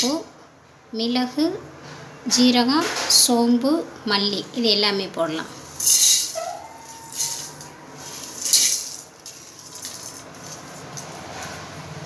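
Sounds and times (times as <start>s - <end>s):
whole spices rattling into a pan: 5.8s - 11.1s.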